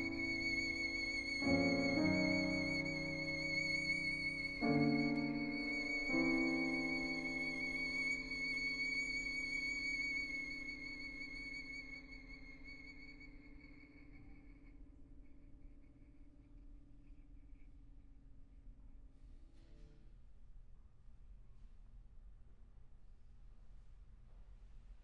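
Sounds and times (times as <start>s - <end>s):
violin long note with vibrato: 0.0s - 13.3s
quiet piano chords: 0.0s - 20.2s.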